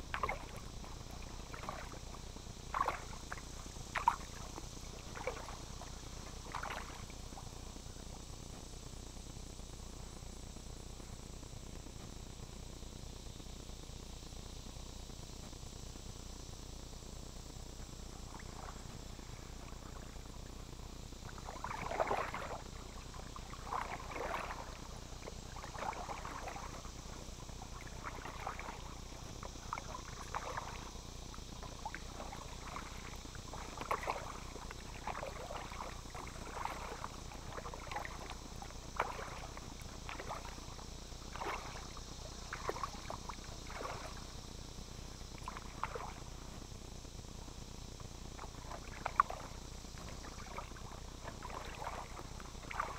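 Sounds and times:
paddle splashing in water: 0.0 - 2.1, 2.7 - 7.0, 21.4 - 22.7, 23.4 - 26.8, 27.6 - 30.9, 31.6 - 44.2, 45.4 - 46.3, 48.4 - 52.9.

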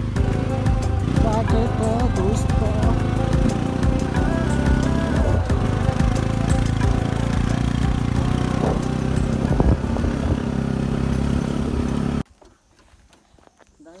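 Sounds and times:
motorcycle engine running: 0.0 - 12.3.

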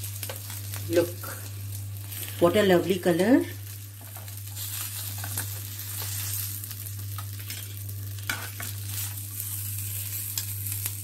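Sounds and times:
fish sizzling on a griller: 0.0 - 11.0
small crackles: 3.6 - 11.0.

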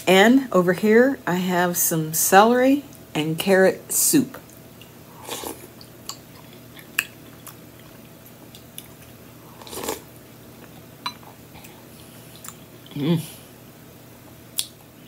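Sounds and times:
soft chewing: 4.4 - 13.3
slurping soup from spoon: 5.2 - 5.7, 9.6 - 10.0
wet mouth clicks: 14.6 - 14.8.

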